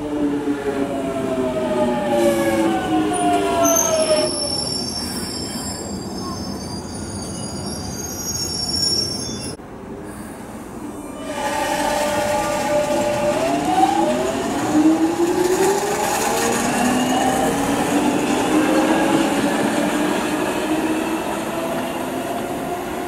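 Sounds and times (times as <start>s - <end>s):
high-pitched brake squeal: 2.2s - 9.6s
train traction motor whine: 11.2s - 22.6s.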